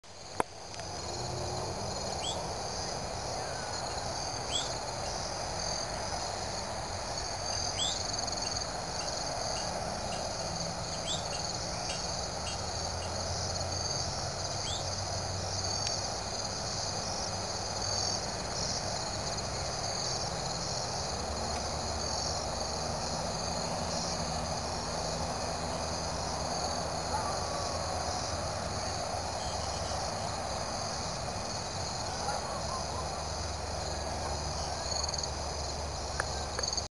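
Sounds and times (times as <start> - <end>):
crickets trilling: 0.1 - 36.9.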